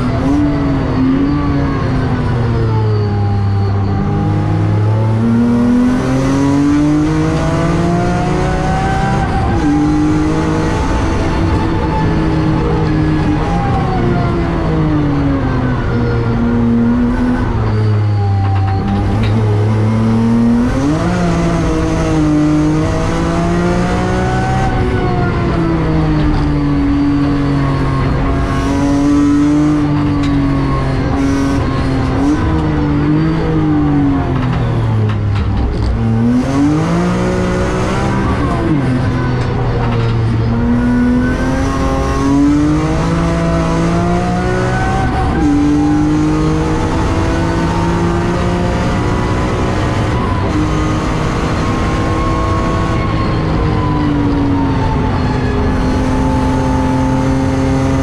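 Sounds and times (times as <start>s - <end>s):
car engine revving from inside cabin: 4.0s - 14.3s, 19.0s - 25.6s, 35.8s - 39.2s, 40.3s - 53.3s, 55.8s - 58.0s.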